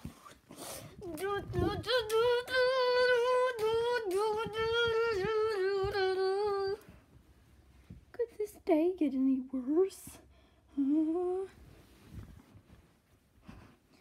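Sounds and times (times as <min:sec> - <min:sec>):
child singing wordless tune: 0:01.0 - 0:06.9
plush toy rustling against microphone: 0:11.4 - 0:14.0.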